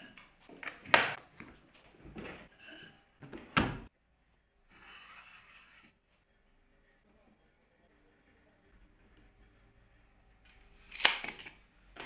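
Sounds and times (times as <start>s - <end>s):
wood rubbing and shuffling: 0.0s - 3.9s.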